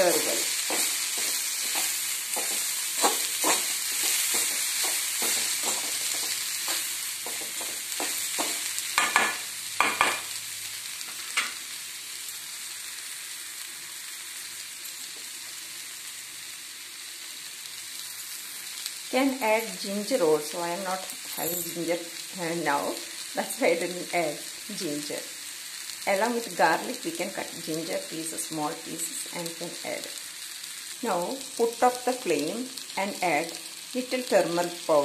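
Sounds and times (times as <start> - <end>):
metal spatula scraping pan: 0.0 - 9.2
onions and spices sizzling: 0.0 - 35.0.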